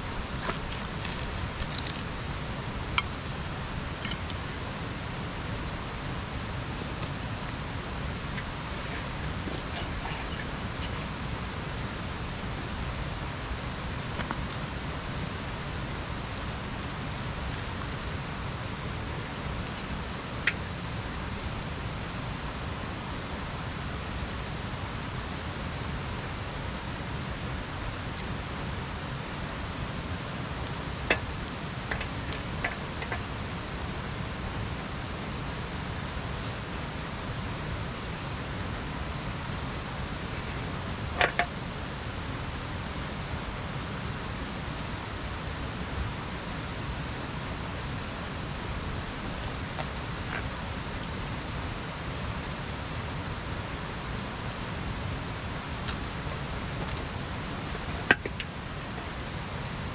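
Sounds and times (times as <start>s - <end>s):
steady rushing background noise: 0.0s - 59.9s
kindling fire snapping and cracking: 0.4s - 2.1s.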